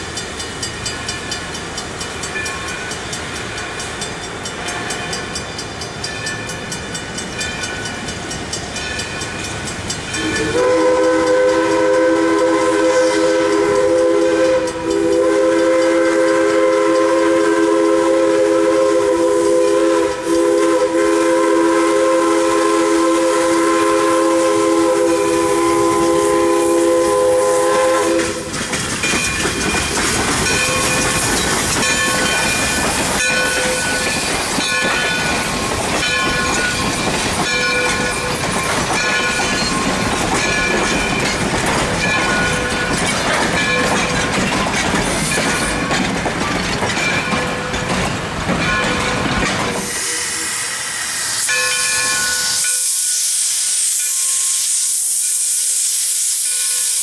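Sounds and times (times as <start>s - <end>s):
steam hissing: 0.0s - 57.0s
train coaches rumbling over rails: 0.0s - 57.0s
bell ringing: 0.1s - 10.5s, 29.0s - 31.2s, 31.8s - 36.8s, 37.4s - 41.4s, 51.4s - 53.0s
steam locomotive whistle: 10.1s - 28.6s, 30.5s - 44.3s, 45.0s - 45.9s, 48.6s - 57.0s.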